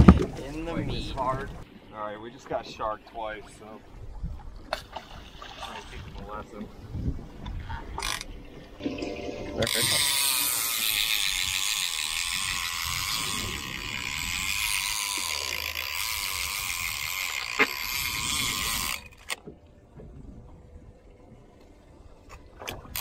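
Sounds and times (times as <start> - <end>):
fishing reel drag buzzing: 9.6 - 19.4.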